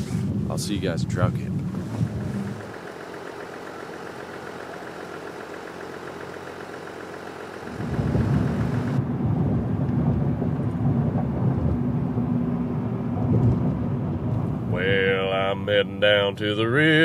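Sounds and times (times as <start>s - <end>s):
truck engine idling with ticking: 0.0s - 9.0s, 14.3s - 17.0s
truck driving rumble inside cab: 0.0s - 17.0s.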